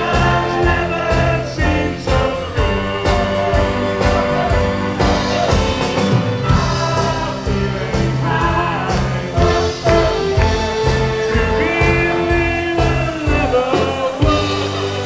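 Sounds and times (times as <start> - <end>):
crowd singing along: 0.0 - 15.0
live band playing: 0.0 - 15.0.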